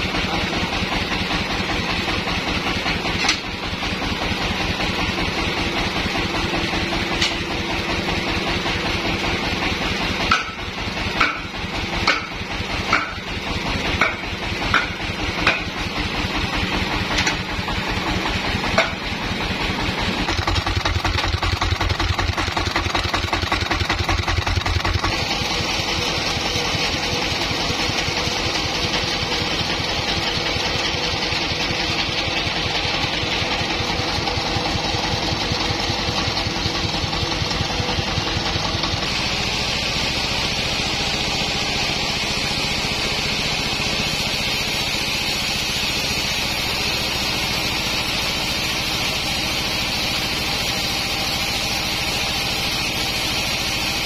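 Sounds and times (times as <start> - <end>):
sawmill engine running: 0.0 - 54.0
sharp knocks: 10.2 - 10.6, 11.2 - 13.3, 14.0 - 15.8.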